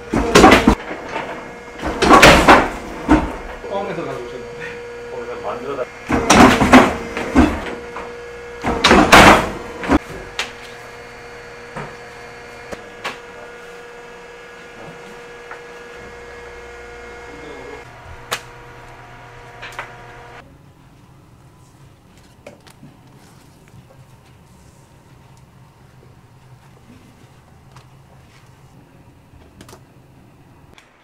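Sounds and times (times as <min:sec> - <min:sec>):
motor humming: 0:00.0 - 0:20.4
press loud clunk: 0:06.1 - 0:07.8, 0:08.6 - 0:10.0.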